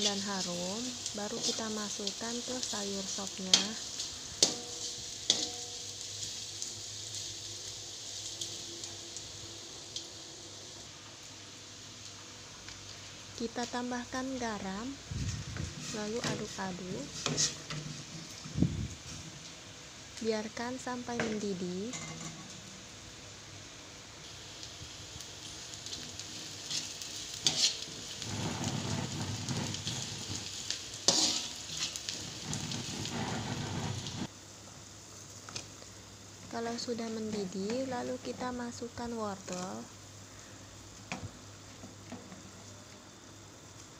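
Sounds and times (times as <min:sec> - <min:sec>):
frying hiss in oil: 0:00.0 - 0:43.9
shallots and garlic sizzling in wok: 0:00.0 - 0:43.9
metal spatula scraping a pan: 0:03.5 - 0:05.8, 0:15.6 - 0:18.6, 0:26.7 - 0:34.3.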